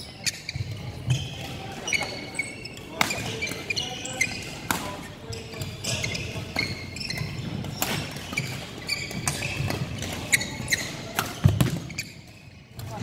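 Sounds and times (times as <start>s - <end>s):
shoes squeaking on court: 0.0s - 13.0s
rackets hitting shuttlecock: 2.8s - 13.0s.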